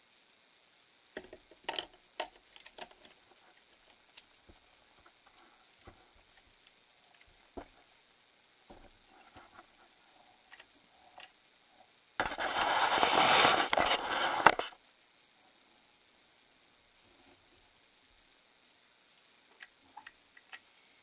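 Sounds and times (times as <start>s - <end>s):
small clicks and taps: 0.7s - 7.9s, 10.5s - 11.4s, 19.5s - 20.7s.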